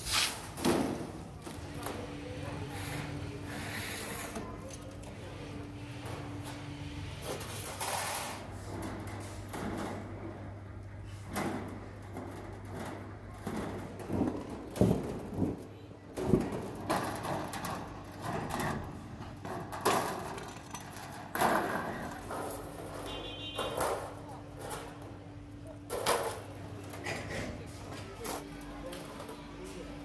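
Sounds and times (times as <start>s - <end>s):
metal sheets scraping and clanking: 16.3s - 25.2s.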